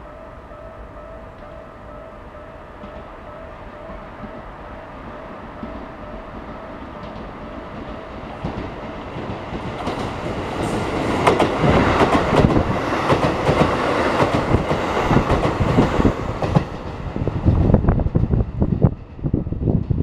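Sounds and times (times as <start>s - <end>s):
electric train passing: 0.0s - 20.0s
wheels clacking over rail joints: 5.5s - 17.2s.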